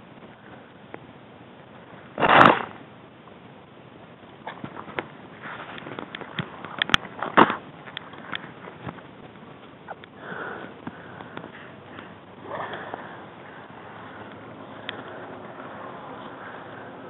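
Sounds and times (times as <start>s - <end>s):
breathing close to microphone: 10.2s - 17.0s.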